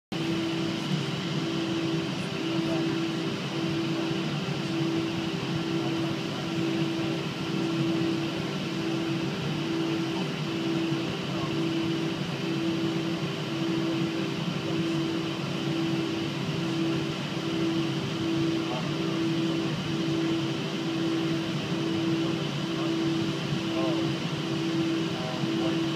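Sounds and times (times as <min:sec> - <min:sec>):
aircraft cabin engine rush: 0:00.1 - 0:25.9
pulsing droning tone: 0:00.1 - 0:25.9.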